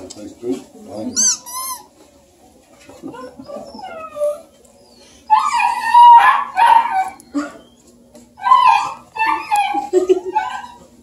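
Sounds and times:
puppies whimpering: 3.0s - 11.0s
dog howling: 5.3s - 7.6s, 8.4s - 10.9s.

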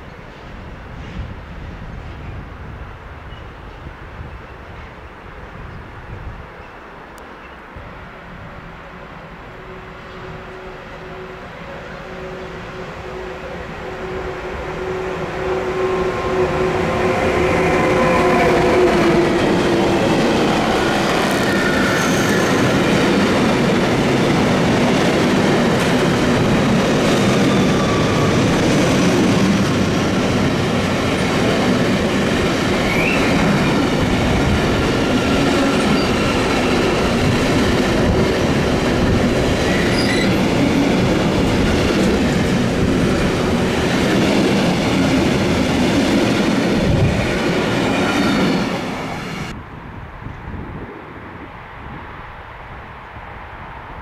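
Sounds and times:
locomotive hum: 9.0s - 49.6s.

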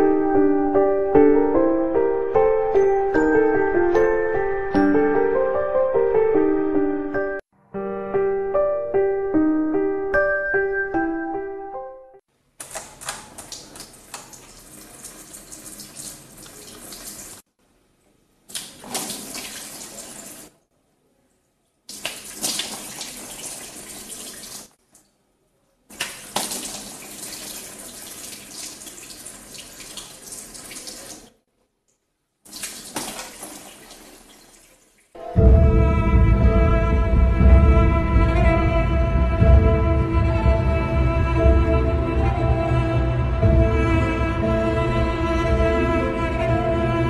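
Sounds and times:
tap water running into steel sink: 12.6s - 17.4s, 25.9s - 31.3s
water splashing on face: 12.6s - 17.4s, 18.5s - 20.6s, 21.9s - 25.2s, 25.9s - 31.4s, 32.5s - 35.1s.

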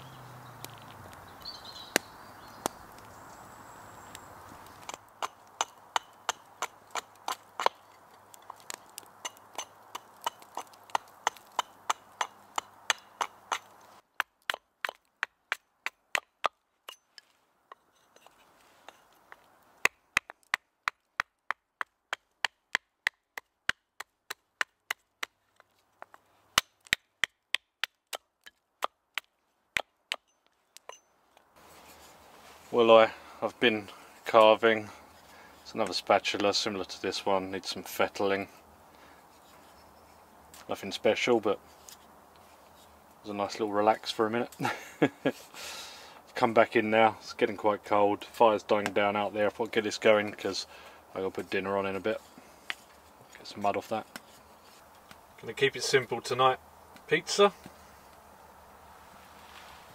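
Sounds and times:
axe chopping wood: 4.8s - 7.8s, 8.5s - 17.0s, 19.8s - 30.3s
soft hiss: 31.5s - 59.9s.

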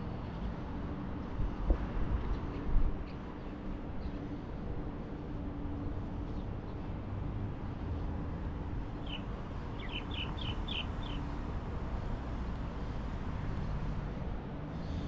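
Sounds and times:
city traffic rumble: 0.0s - 15.0s
bird chirping: 9.0s - 11.2s.

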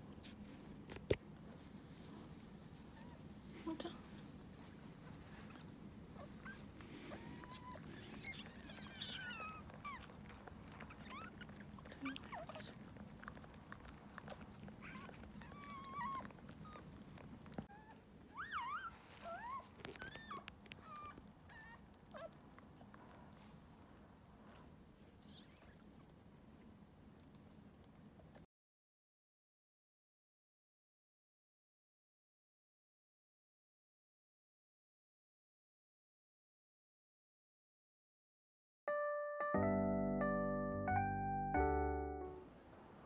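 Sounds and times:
puppy squeaking: 5.4s - 22.4s.

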